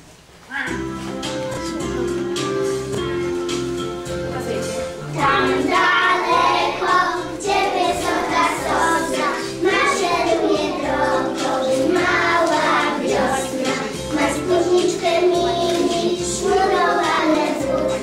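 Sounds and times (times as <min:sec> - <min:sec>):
instrumental accompaniment: 0:00.5 - 0:18.0
children singing: 0:05.1 - 0:18.0.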